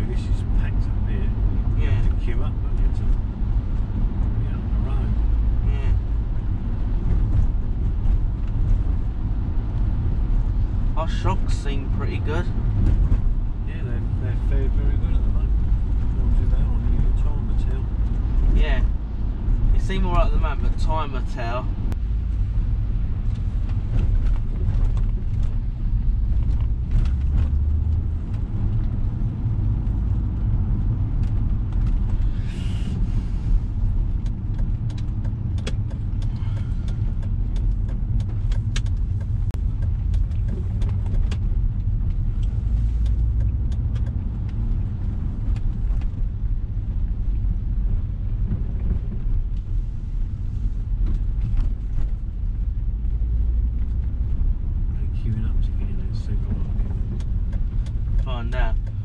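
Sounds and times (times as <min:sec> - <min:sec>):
car engine and road rumble: 0:00.0 - 0:59.0
light ticks: 0:34.2 - 0:44.6.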